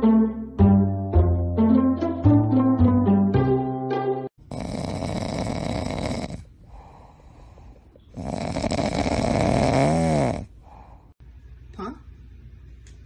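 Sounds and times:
dog snoring: 0:04.5 - 0:07.0, 0:08.1 - 0:10.6.

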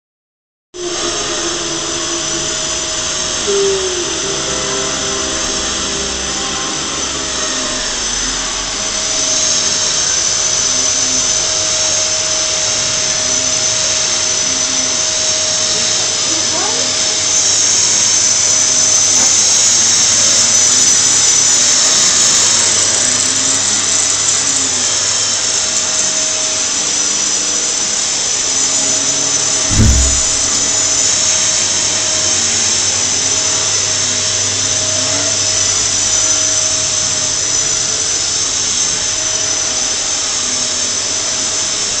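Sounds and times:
low thump: 0:29.7 - 0:31.0.

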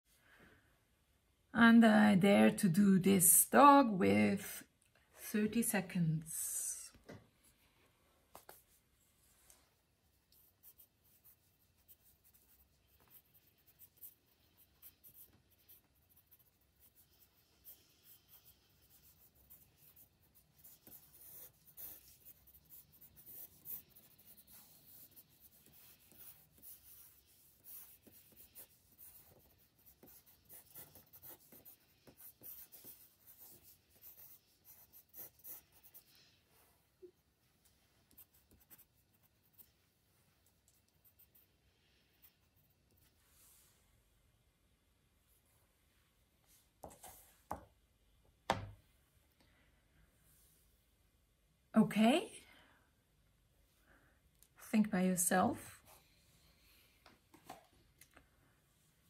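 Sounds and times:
drawing tool scratching on paper: 0:10.3 - 0:36.1.

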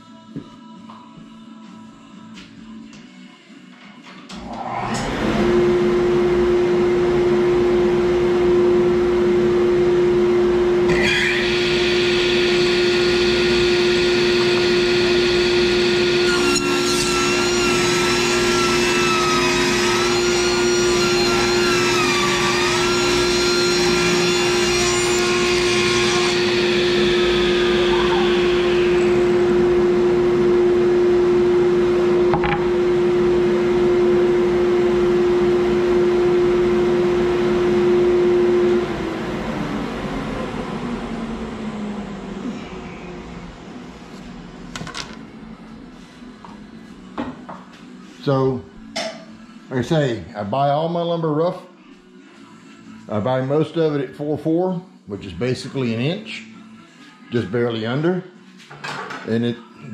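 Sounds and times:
table saw motor hum: 0:04.4 - 0:46.6.

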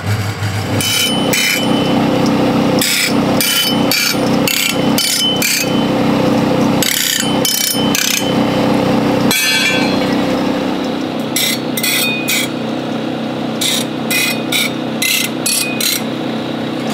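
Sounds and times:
grinding wheel motor hum: 0:00.0 - 0:16.9
steel scraping on grinding wheel: 0:00.6 - 0:12.5.

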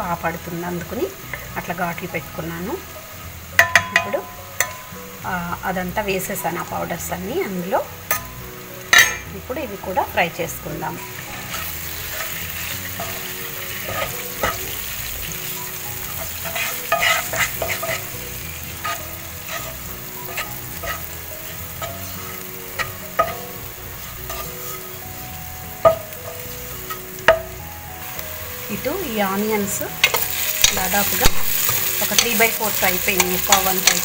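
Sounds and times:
eggs sizzling in oil: 0:00.0 - 0:34.0
spatula clicking and knocking on pan: 0:03.6 - 0:04.8
spatula scraping pan: 0:11.2 - 0:25.3.

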